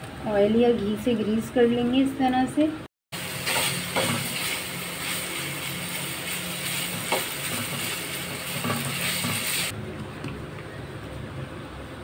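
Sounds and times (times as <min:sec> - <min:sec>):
chicken sizzling in a frying pan: 0:03.2 - 0:09.8
spatula scraping a pan: 0:03.4 - 0:05.2, 0:06.6 - 0:09.7.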